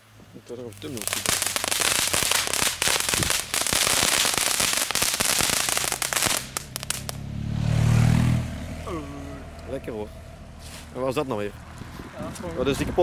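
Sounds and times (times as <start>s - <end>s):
firework crackling pops: 0.7s - 7.2s.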